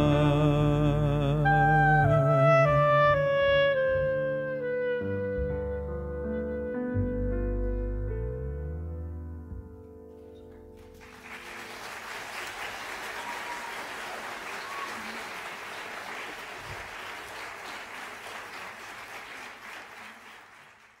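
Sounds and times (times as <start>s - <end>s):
audience applauding: 10.8s - 21.0s.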